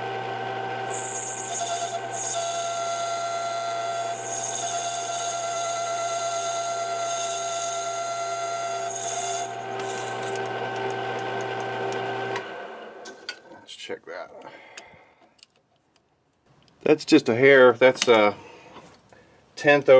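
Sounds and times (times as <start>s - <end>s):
machine motor humming and whining: 0.0s - 13.0s.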